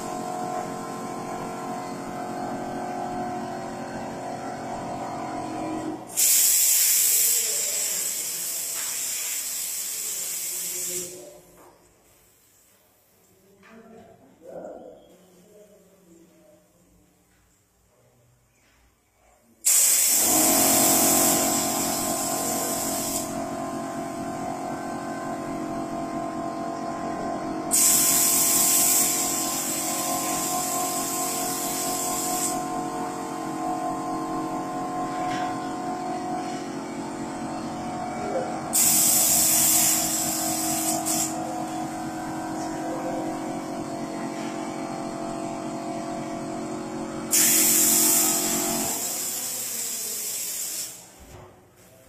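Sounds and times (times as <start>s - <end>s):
motor hum with pitched tones: 0.0s - 6.0s, 41.3s - 47.3s
spray gun hissing: 6.1s - 11.3s, 19.6s - 23.4s, 27.7s - 32.7s, 38.7s - 41.4s, 47.3s - 51.1s.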